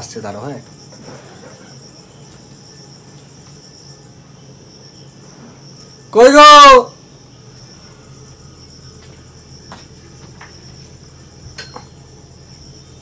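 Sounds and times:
high-pitched insect trill: 0.0s - 13.0s
low hum: 7.0s - 13.0s.

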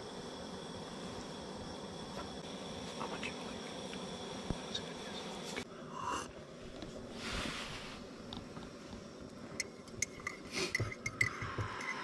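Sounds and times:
spoon clinking against a mug: 9.6s - 12.0s.

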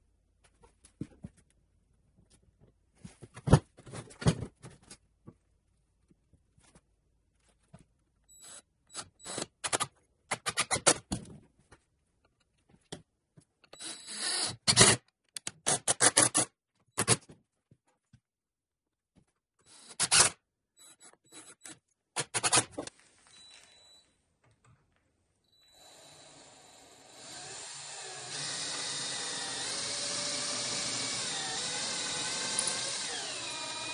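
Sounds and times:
impact driver driving screws: 27.7s - 33.9s.

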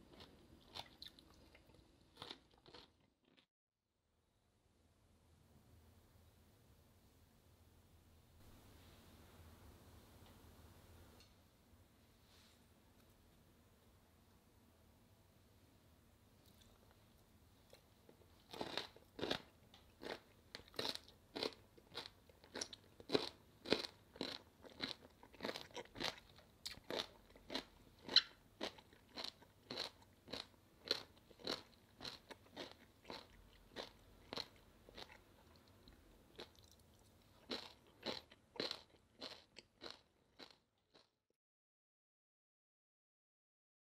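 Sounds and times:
crunchy chewing of radish: 0.0s - 3.4s, 17.7s - 41.1s.

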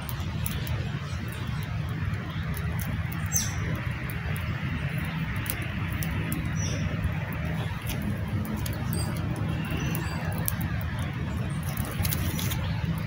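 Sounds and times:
campfire crackling and popping: 0.0s - 13.0s
bird chirps: 3.2s - 3.6s.

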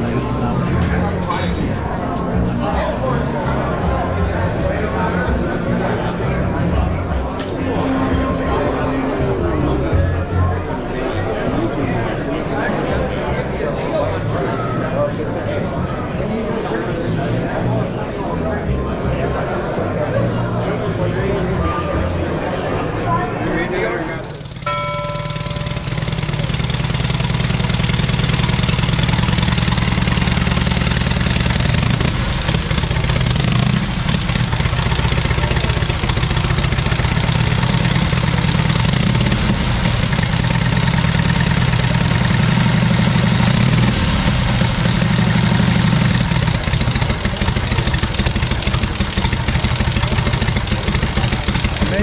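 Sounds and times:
motorcycle engine idling: 24.1s - 52.0s.

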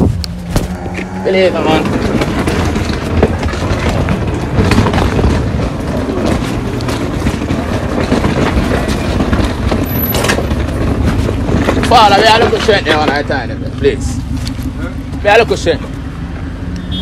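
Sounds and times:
low vehicle rumble: 0.0s - 17.0s.

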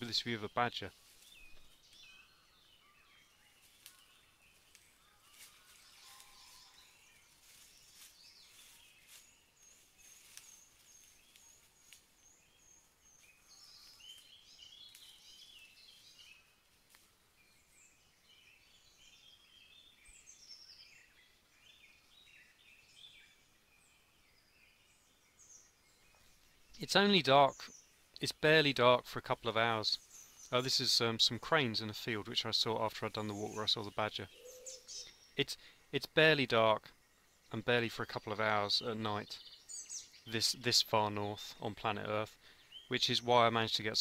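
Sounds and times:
birds chirping and trilling: 0.0s - 44.0s
dry leaves crackling: 3.6s - 12.2s.

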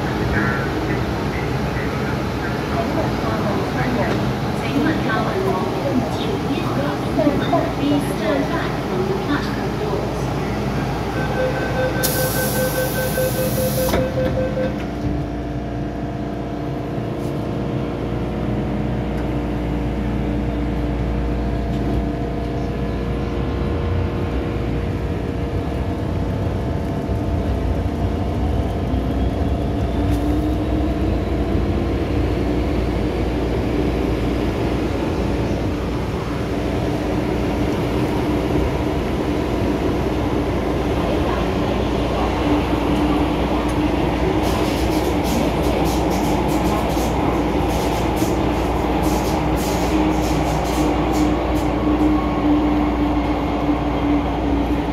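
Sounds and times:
door-closing warning beeps: 11.2s - 14.9s
train doors hissing shut: 12.0s - 14.1s, 44.3s - 51.8s
train wheels rumbling: 23.6s - 54.9s.

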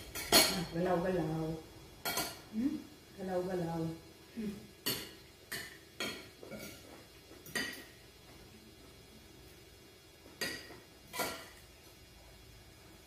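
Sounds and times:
cutlery clinking on plates: 0.1s - 0.7s, 4.8s - 8.0s, 10.4s - 11.6s.

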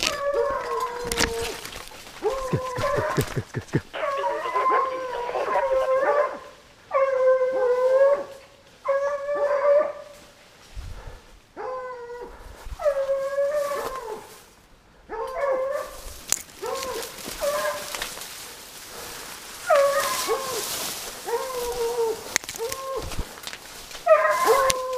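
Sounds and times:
hunting dog baying: 0.0s - 8.3s, 15.1s - 16.0s, 16.6s - 18.0s, 19.6s - 23.2s, 24.0s - 24.9s.

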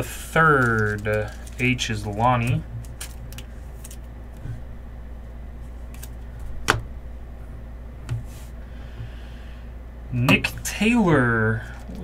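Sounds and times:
steady low hum: 0.0s - 12.0s
plastic sleeve rustling: 0.1s - 4.1s.

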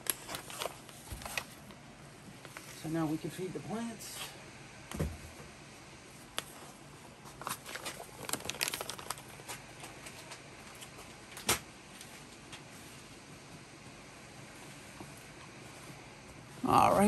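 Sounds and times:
packaging crinkling and rustling: 0.0s - 1.8s, 6.4s - 11.5s.

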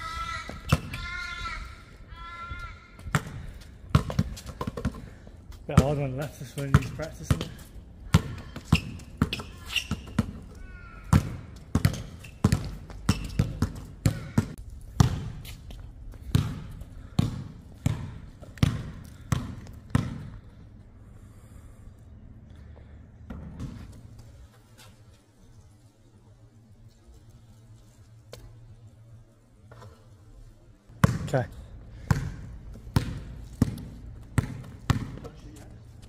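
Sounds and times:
basketball bouncing on hard court: 3.0s - 5.0s, 6.6s - 20.4s, 31.0s - 31.3s, 32.0s - 35.4s.

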